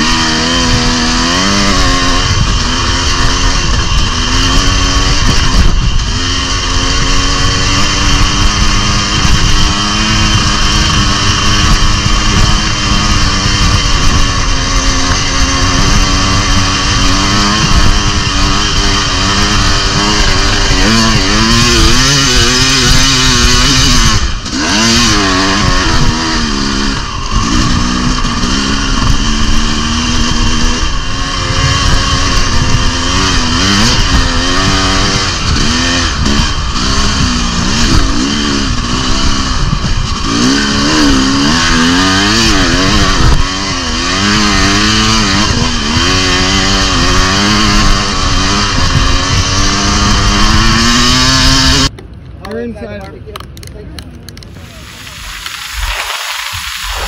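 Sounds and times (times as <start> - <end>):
dirt bike engine revving: 0.0 - 52.0, 54.5 - 57.0
constant loud hiss: 51.4 - 57.0.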